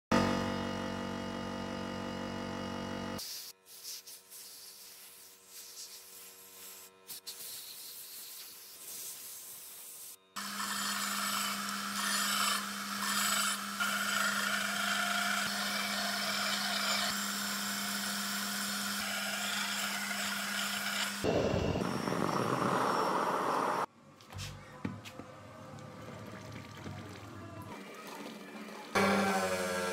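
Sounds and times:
belt sander grinding metal: 0:10.4 - 0:23.9.

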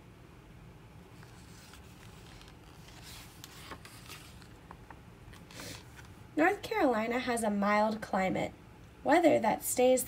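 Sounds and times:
book page rustling: 0:01.2 - 0:06.2.

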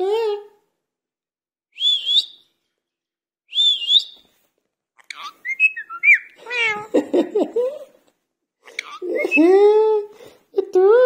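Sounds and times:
parakeet whistling: 0:01.8 - 0:02.5, 0:03.5 - 0:04.2, 0:05.1 - 0:06.8
parakeet chattering and squeaky calls: 0:05.0 - 0:06.9, 0:08.6 - 0:09.4
parakeet talking sounds: 0:05.0 - 0:06.9, 0:08.6 - 0:09.4.

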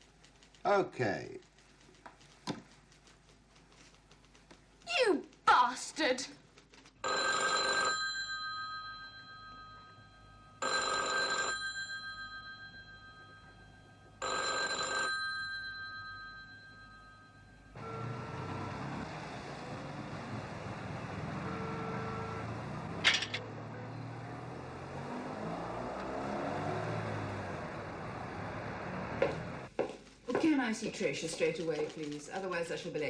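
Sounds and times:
telephone bell ringing: 0:07.0 - 0:18.8, 0:21.4 - 0:22.5
street traffic hum: 0:17.7 - 0:30.4.

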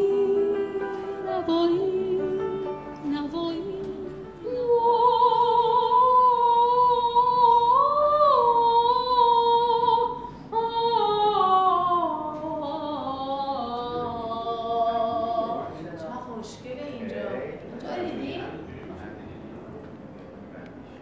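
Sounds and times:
woman singing operatic notes: 0:00.0 - 0:15.7.

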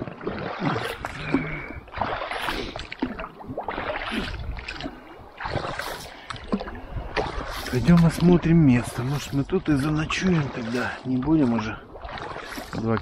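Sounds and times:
paddle strokes splashing: 0:00.0 - 0:13.0.

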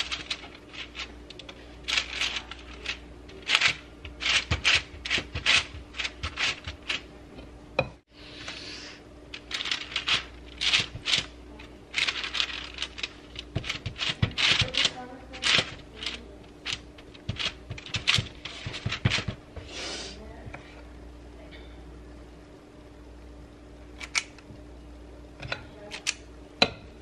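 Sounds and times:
parchment paper crinkling: 0:00.0 - 0:07.1, 0:09.3 - 0:19.4
faint steady hum: 0:00.0 - 0:27.0.

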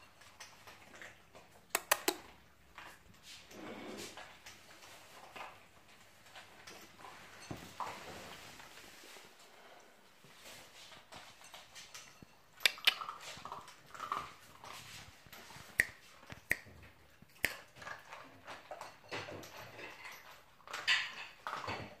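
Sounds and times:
dog crunching dry food: 0:12.6 - 0:19.0.

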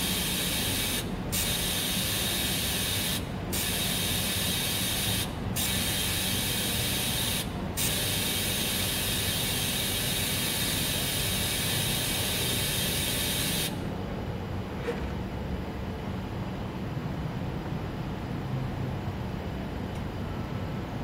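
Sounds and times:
welding arc hissing: 0:00.0 - 0:13.8.

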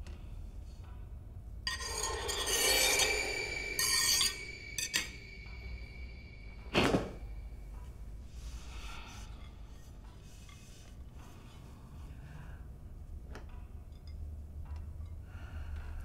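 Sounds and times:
ceramic plates scraping: 0:01.7 - 0:05.2
faint steady high tones: 0:01.7 - 0:08.2.

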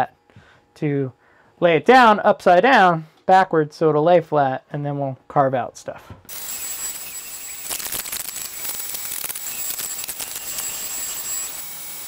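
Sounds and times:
router high whine: 0:06.3 - 0:12.0
wood cutting hiss and crackles: 0:06.3 - 0:12.0.

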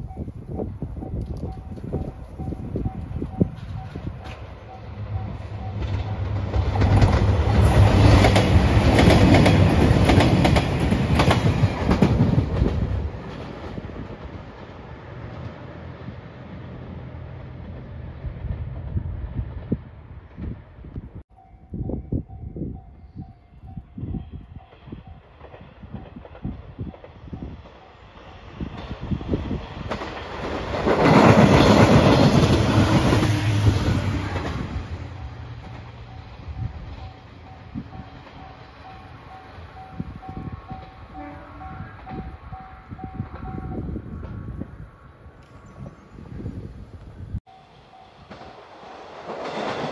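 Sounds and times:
diesel train engine drone: 0:00.0 - 0:21.0, 0:46.2 - 0:49.9
train wheels clacking on rails: 0:01.3 - 0:14.3, 0:47.5 - 0:49.9.

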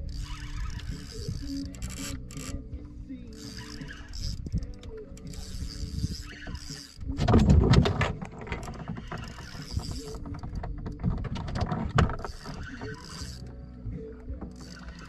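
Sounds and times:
fishing reel clicking: 0:00.0 - 0:07.2, 0:08.6 - 0:10.6, 0:12.1 - 0:13.5, 0:14.2 - 0:15.0.

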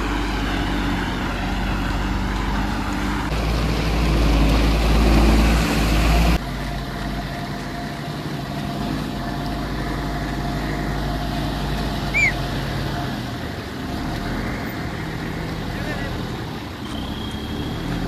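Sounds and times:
diesel engine idling: 0:00.0 - 0:18.0
short high chirp: 0:12.1 - 0:12.4.

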